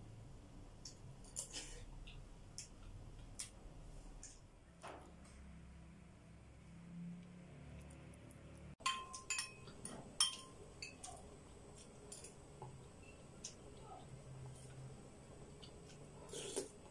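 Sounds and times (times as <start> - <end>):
spoon clinking on ceramic bowl: 8.8 - 11.2.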